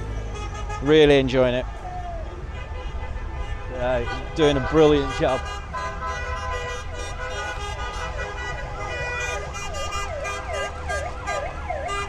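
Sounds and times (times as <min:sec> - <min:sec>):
siren-style wailing: 0:09.2 - 0:12.0.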